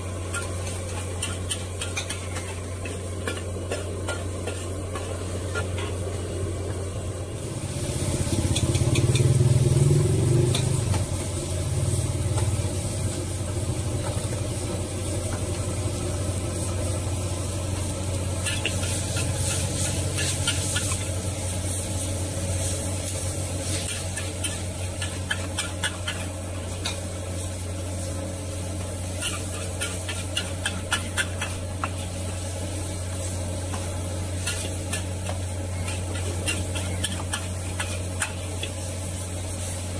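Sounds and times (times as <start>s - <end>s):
food sizzling in a wok: 0.0s - 39.9s
metal spatula scraping and clanking: 0.3s - 6.0s, 8.4s - 9.4s, 18.4s - 21.1s, 23.6s - 27.2s, 29.0s - 32.2s, 33.7s - 38.8s.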